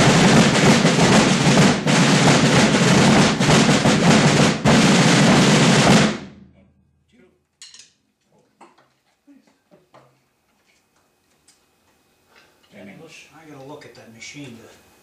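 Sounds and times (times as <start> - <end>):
snare and bass drum line: 0.0 - 6.4.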